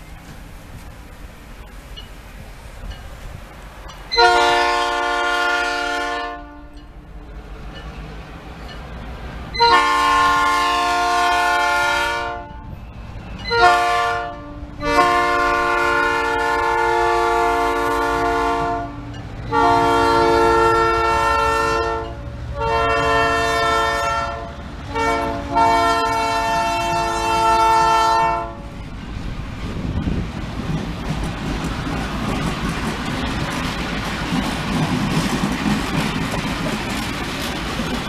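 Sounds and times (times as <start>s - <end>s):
train rumbling on rails: 0.0s - 38.0s
locomotive air horn blasts: 4.1s - 6.8s, 9.6s - 12.8s, 13.5s - 28.8s.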